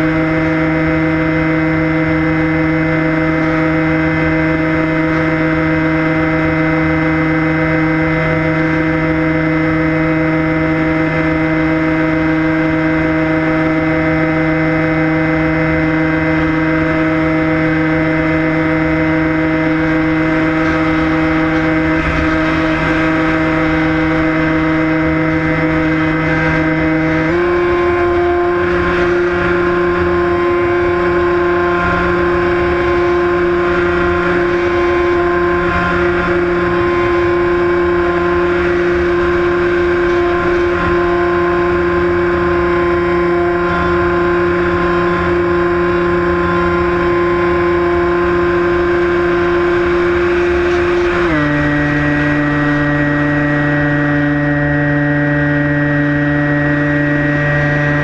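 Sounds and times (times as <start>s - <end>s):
electric motor and propeller whine: 0.0s - 58.0s
wind rushing over microphone: 18.4s - 54.4s.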